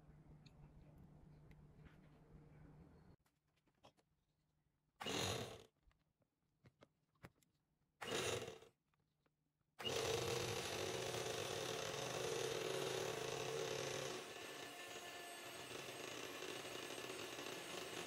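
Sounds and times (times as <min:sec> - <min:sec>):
electric hand mixer whirring: 0:09.8 - 0:18.0.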